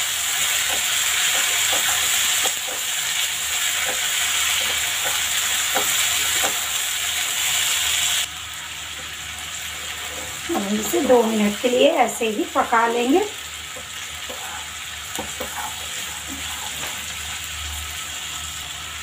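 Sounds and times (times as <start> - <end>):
chickpeas sizzling in hot oil: 0.0 - 19.0
spatula scraping a pan: 0.4 - 6.8, 9.7 - 10.5, 13.6 - 17.5.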